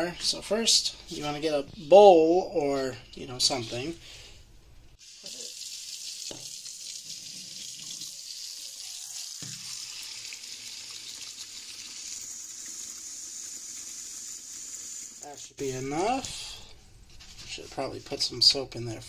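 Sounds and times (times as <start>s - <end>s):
tap water running into bowl: 5.2s - 15.2s.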